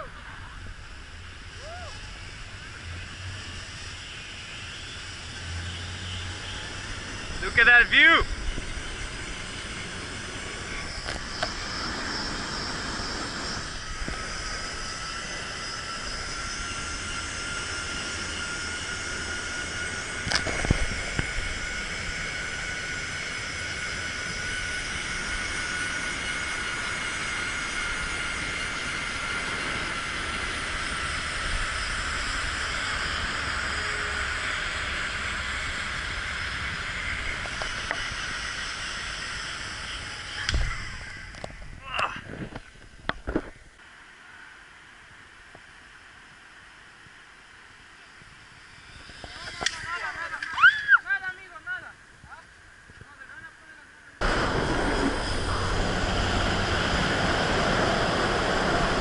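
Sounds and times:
zip-line pulleys whining on cable: 0.0 - 59.0
wind rushing: 54.2 - 59.0.

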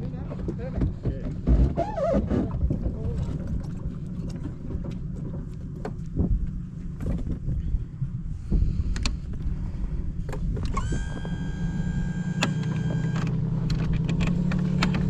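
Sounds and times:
outboard motor humming: 1.4 - 7.4, 8.4 - 15.0
electric power trim whine: 10.6 - 15.0.

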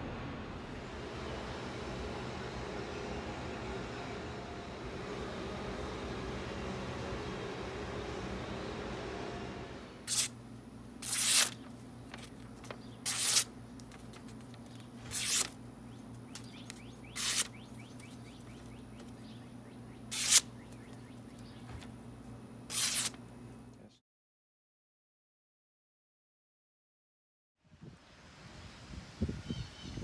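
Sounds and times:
low steady hum: 0.0 - 24.0
blade slicing paper: 10.1 - 10.4, 11.0 - 15.6, 16.4 - 17.6, 20.1 - 20.5, 22.7 - 23.2.

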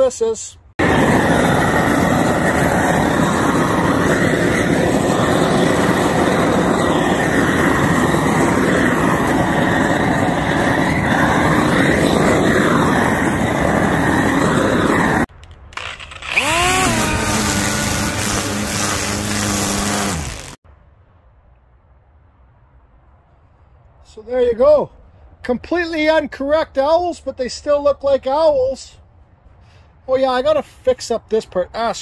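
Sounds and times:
rotary tool grinding wood: 0.8 - 20.6
rotary tool whine: 0.8 - 20.6.

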